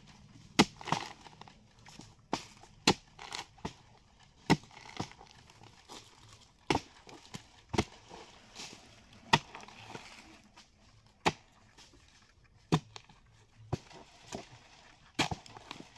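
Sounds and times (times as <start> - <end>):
wood splintering: 0.4 - 15.9
axe chopping wood: 0.5 - 5.8, 6.6 - 8.2, 9.2 - 10.0, 11.2 - 11.9, 12.7 - 13.1, 13.7 - 14.5, 15.2 - 15.9.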